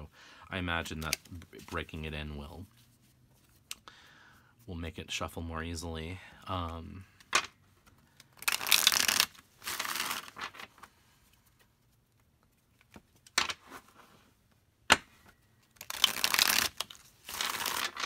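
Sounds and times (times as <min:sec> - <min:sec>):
cards being shuffled: 0:00.8 - 0:03.8, 0:07.1 - 0:14.2, 0:14.9 - 0:18.0.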